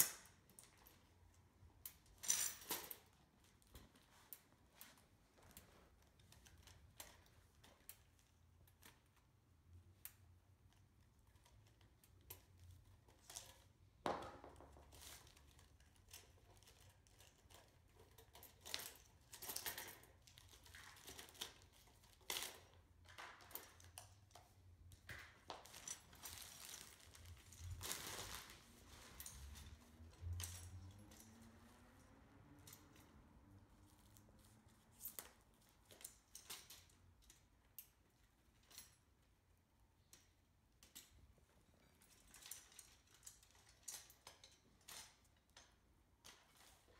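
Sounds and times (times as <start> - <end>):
plastic wrap crinkling: 25.6 - 29.6.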